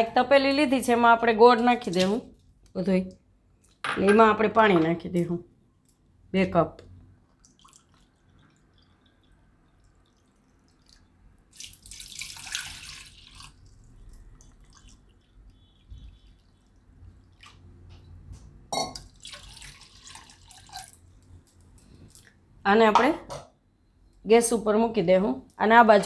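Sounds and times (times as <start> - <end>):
water pouring into a metal pot: 7.4 - 17.8, 18.9 - 21.2.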